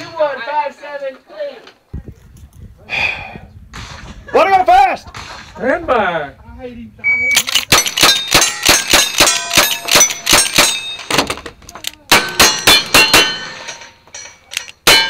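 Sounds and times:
gun clicks: 0:07.3 - 0:10.6, 0:11.6 - 0:12.2, 0:14.5 - 0:14.8
steel target ringing: 0:08.0 - 0:11.1.

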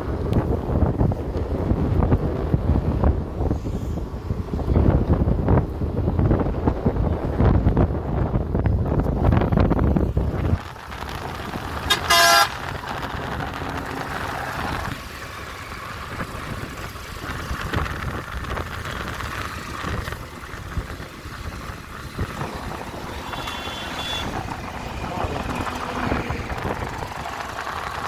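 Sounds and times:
motorbike wind and road noise: 0:00.0 - 0:28.0
vehicle horn toot: 0:11.9 - 0:12.6, 0:23.2 - 0:24.6.

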